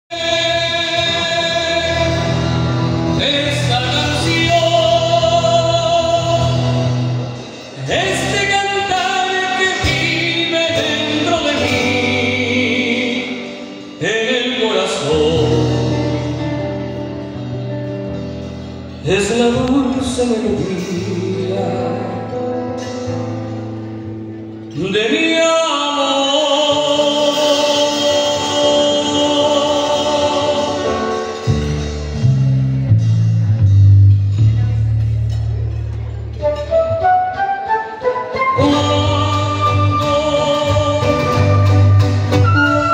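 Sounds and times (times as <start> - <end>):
electric bass: 0.1 - 14.1, 15.0 - 24.7, 27.4 - 42.9
man singing a long note: 0.1 - 17.0, 24.8 - 31.3, 38.3 - 42.9
acoustic guitar: 0.1 - 42.9.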